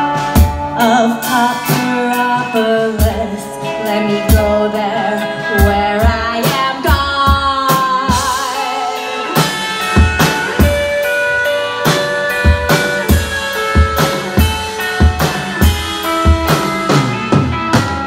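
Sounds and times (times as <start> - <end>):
drum kit: 0.0 - 18.0
electric guitar: 0.0 - 18.0
woman singing: 0.7 - 9.4.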